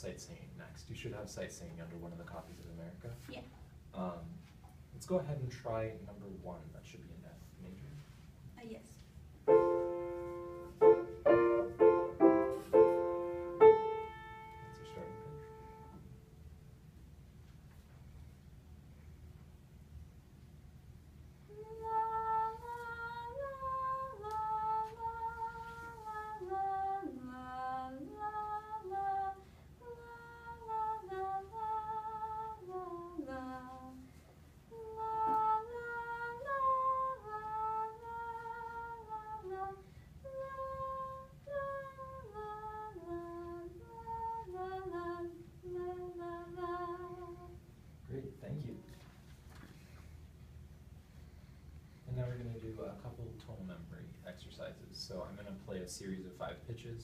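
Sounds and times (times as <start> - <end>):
girl singing unaccompanied melody: 9.5 - 16.2, 21.5 - 47.8.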